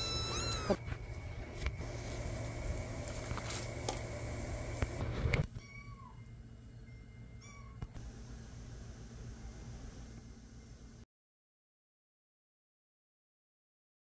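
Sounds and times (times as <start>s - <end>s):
kittens mewing: 0.0s - 0.9s.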